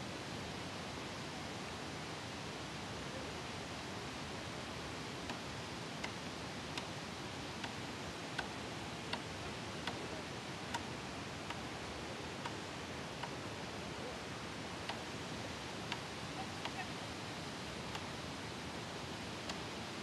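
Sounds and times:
light regular ticks: 0:08.4 - 0:10.1.

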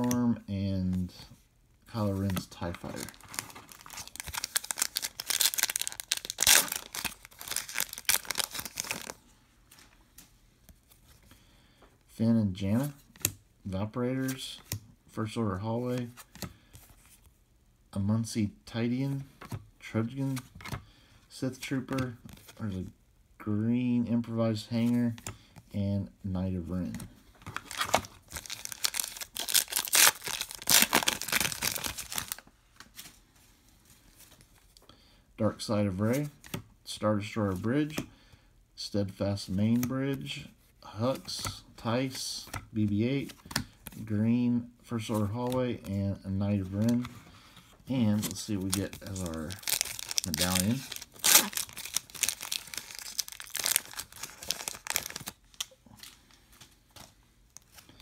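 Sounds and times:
foil wrapper crinkling and tearing: 0:02.8 - 0:09.2, 0:27.6 - 0:32.4, 0:48.6 - 0:55.7.

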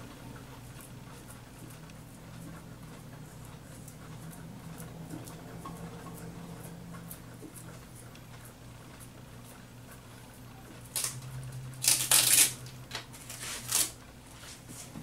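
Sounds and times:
faint steady hum: 0:00.0 - 0:15.0
masking tape peeled off: 0:10.9 - 0:11.2, 0:11.8 - 0:14.0.

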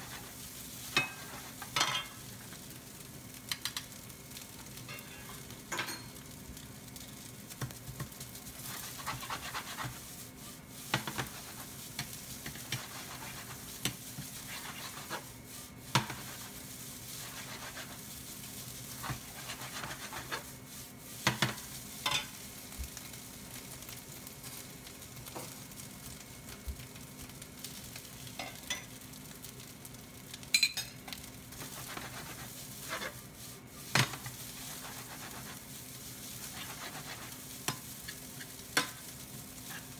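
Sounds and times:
rice sizzling in a frying pan: 0:00.0 - 0:39.9
ladle scraping a pan: 0:12.4 - 0:18.0, 0:18.9 - 0:20.5, 0:31.5 - 0:39.9.

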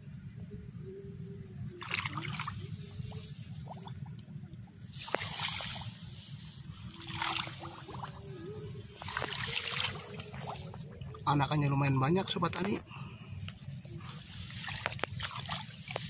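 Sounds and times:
steady low rumble: 0:00.0 - 0:16.0
footsteps wading through water: 0:01.8 - 0:04.4, 0:05.0 - 0:11.6, 0:13.5 - 0:16.0.

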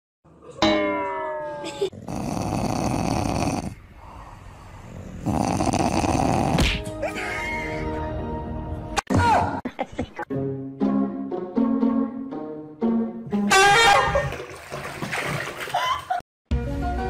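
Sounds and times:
dog snoring: 0:02.0 - 0:06.7.

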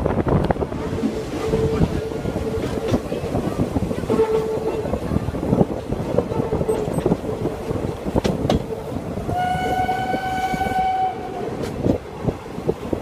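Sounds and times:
train wheels clicking over rails: 0:00.0 - 0:10.6, 0:11.4 - 0:13.0
steam locomotive whistle: 0:09.3 - 0:11.5.

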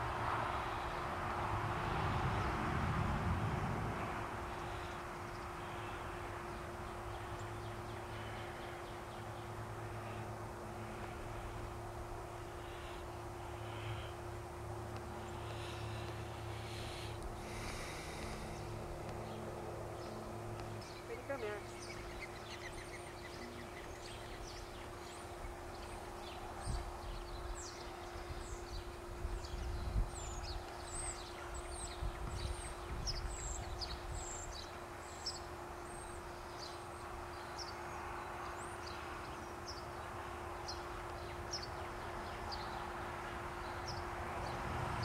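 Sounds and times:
faint steady hum: 0:00.0 - 0:45.0
low rumbling on microphone: 0:00.1 - 0:05.9
small birds chirping: 0:04.5 - 0:44.6.

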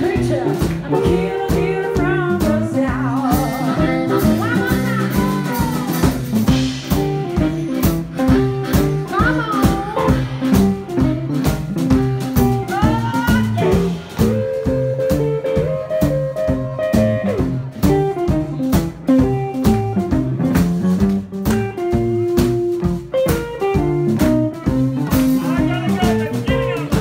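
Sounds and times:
harmonica bending notes: 0:03.0 - 0:18.6.

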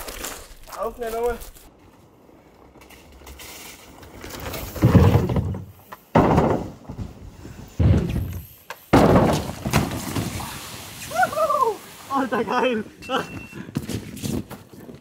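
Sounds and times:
bike rolling up wooden ramp: 0:00.0 - 0:15.0.

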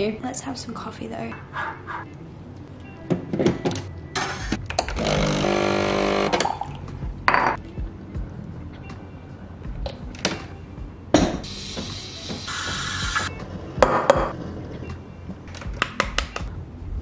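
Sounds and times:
espresso machine pump buzzing: 0:05.0 - 0:06.4
steam hiss: 0:11.4 - 0:13.3.

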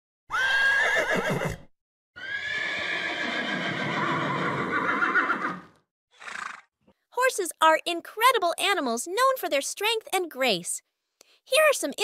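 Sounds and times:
horse whinnying: 0:00.3 - 0:06.7.

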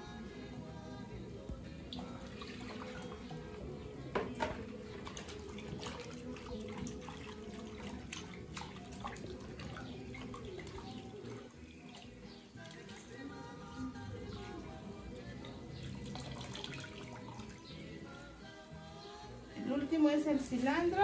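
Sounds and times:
water pouring: 0:01.9 - 0:03.5, 0:04.4 - 0:13.3, 0:15.4 - 0:17.6
water splashing and dripping: 0:04.4 - 0:13.3, 0:15.4 - 0:17.7.

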